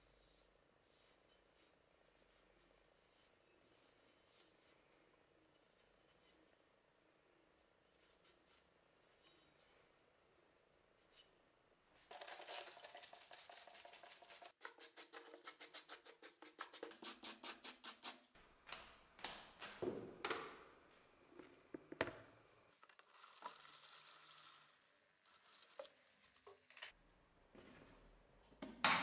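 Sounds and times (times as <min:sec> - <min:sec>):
liquid pouring and splashing: 0:22.7 - 0:26.9.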